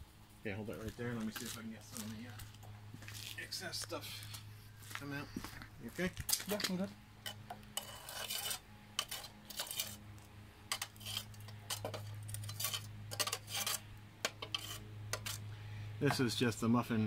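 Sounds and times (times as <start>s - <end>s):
steel rod scraping metal crucible: 7.2s - 10.0s, 10.7s - 15.5s.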